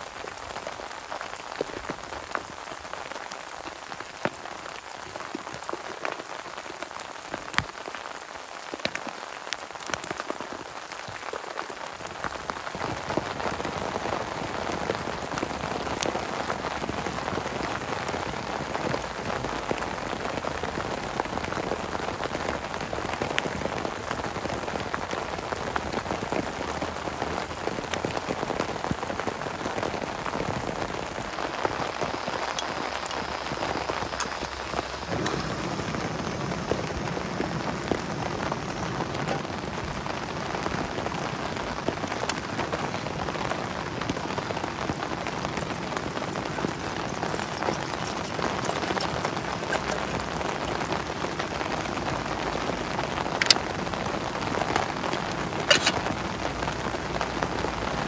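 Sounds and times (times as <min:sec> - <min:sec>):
heavy rain on plastic tarp: 0:00.0 - 0:58.0.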